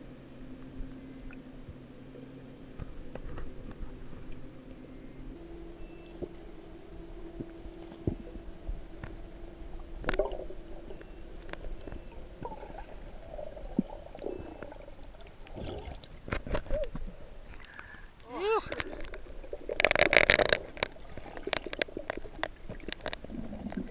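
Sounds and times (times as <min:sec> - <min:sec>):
faint steady hum: 0:00.0 - 0:23.9
muffled underwater rumble: 0:00.0 - 0:23.9
water splashes: 0:07.4 - 0:23.9
underwater clicks and pops: 0:10.0 - 0:12.7, 0:16.2 - 0:17.9, 0:18.7 - 0:23.9.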